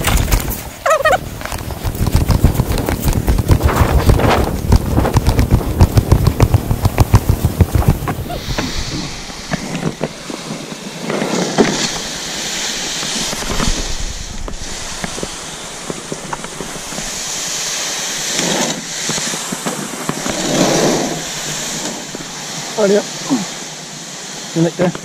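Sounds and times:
canoe hull scraping over sand: 0:00.0 - 0:23.1.

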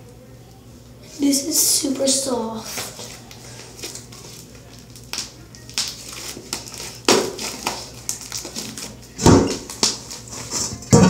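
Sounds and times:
slime squishing and crackling: 0:02.7 - 0:10.5.

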